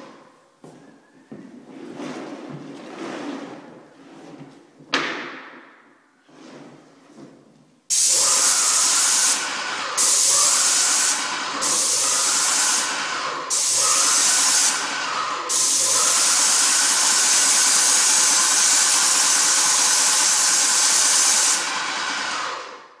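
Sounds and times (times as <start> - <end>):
paint sprayer hissing: 7.9 - 22.9.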